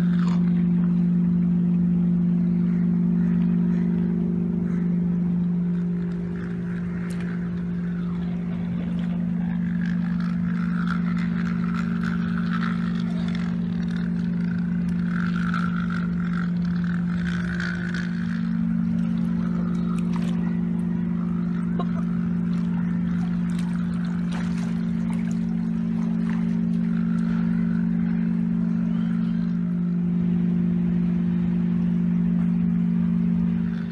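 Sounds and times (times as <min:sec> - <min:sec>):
toy train motor whirring: 0:09.8 - 0:18.5.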